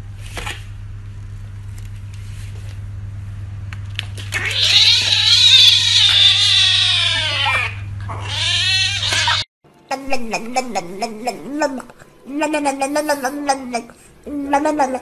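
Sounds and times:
steady low hum: 0.0s - 15.0s
kitten meowing: 4.4s - 9.4s.

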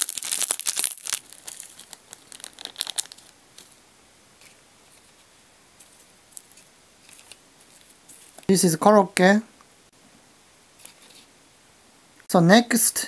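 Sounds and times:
plastic sachet crinkling: 0.0s - 3.8s, 4.4s - 8.5s.

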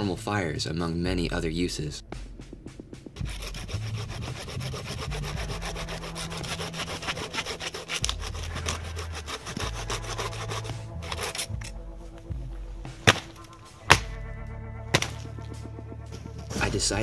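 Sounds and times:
hand saw cutting wood: 3.2s - 11.8s, 13.0s - 14.2s, 14.9s - 15.3s.

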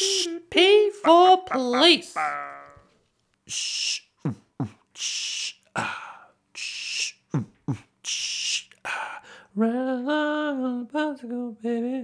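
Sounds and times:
beatboxing hissing snare: 0.0s - 0.4s, 3.5s - 5.8s, 6.6s - 8.8s.

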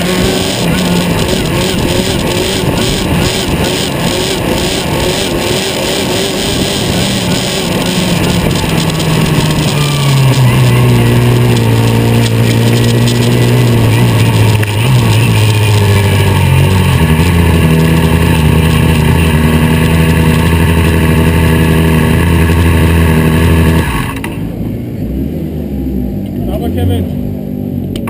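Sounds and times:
race car engine running: 0.0s - 28.0s.

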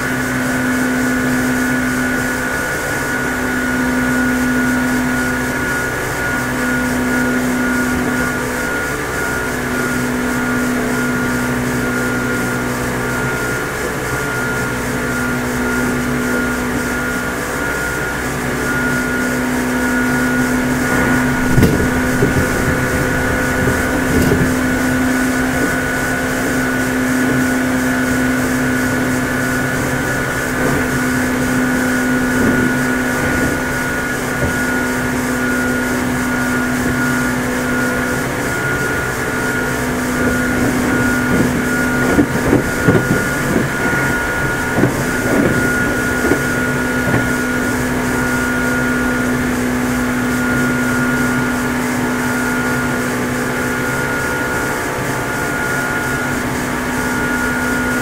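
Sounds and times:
electric train humming and whining: 0.0s - 58.0s
low thuds: 20.4s - 27.2s.

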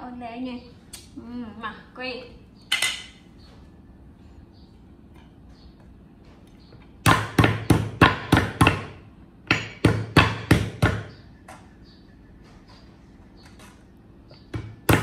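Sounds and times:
cleaver chopping on wooden board: 7.0s - 11.1s, 14.5s - 15.0s.

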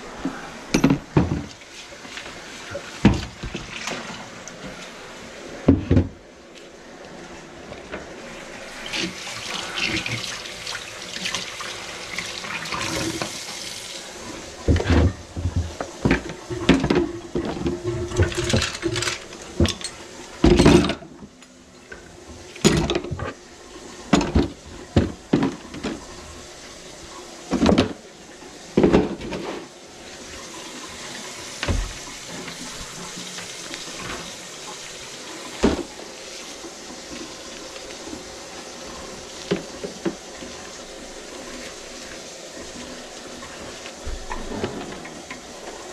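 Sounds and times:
tap water running into sink: 8.7s - 21.3s, 21.9s - 45.9s.

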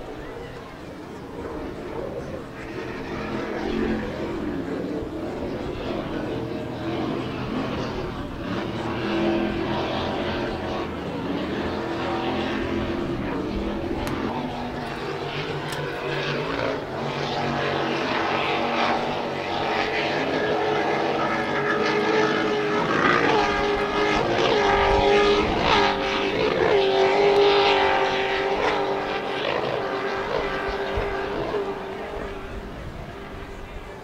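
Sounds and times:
powerboat engines at high speed: 0.0s - 34.0s.

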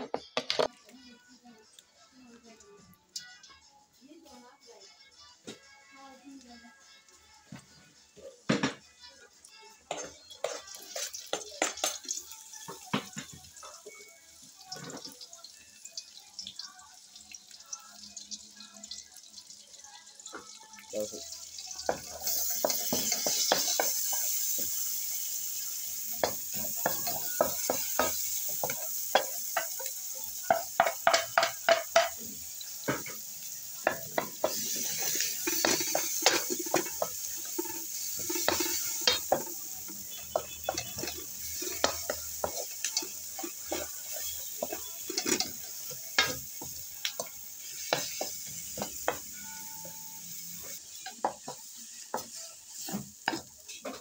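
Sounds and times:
frying sizzle: 6.3s - 54.0s
spatula knocking and scraping pan: 26.2s - 32.2s, 33.8s - 39.6s, 40.2s - 50.0s.

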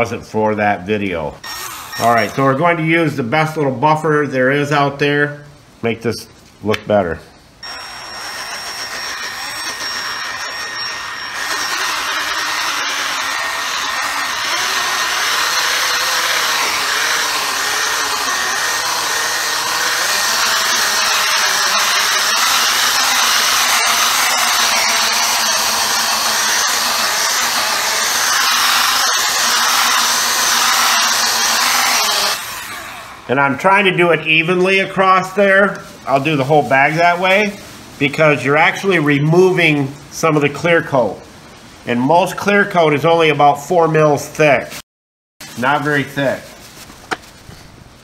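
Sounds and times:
polishing buffer whirring: 1.4s - 2.8s, 7.6s - 35.2s.

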